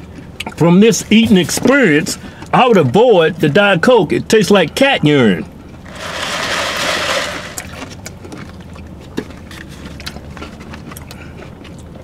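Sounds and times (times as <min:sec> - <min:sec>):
chewing: 0:07.7 - 0:12.0.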